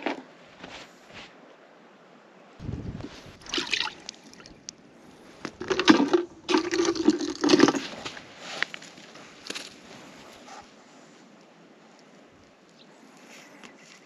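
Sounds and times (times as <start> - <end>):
water sloshing and splashing: 3.0 - 4.7, 5.3 - 10.2.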